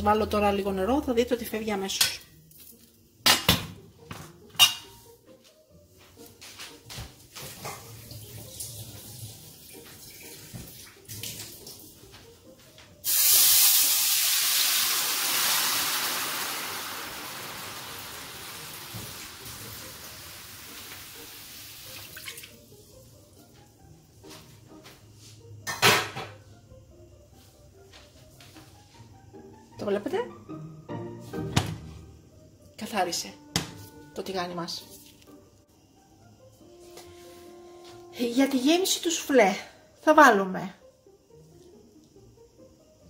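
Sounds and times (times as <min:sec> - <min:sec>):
water sizzling in hot pan: 0:07.4 - 0:11.9, 0:13.0 - 0:22.8.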